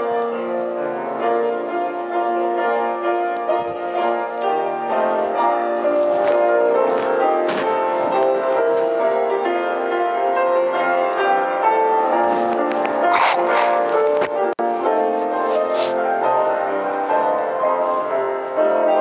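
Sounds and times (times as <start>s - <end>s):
slow piano chords: 0.0s - 19.0s.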